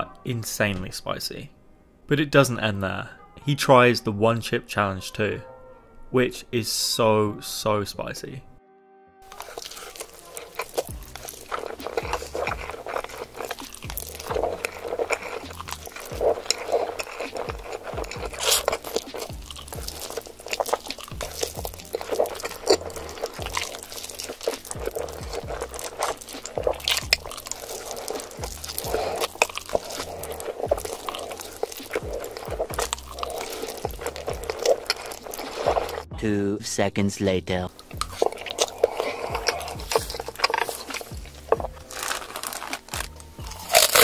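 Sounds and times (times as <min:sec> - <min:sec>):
background music: 0:00.0 - 0:44.0
slurping and chewing noodles: 0:09.2 - 0:36.1, 0:37.7 - 0:44.0.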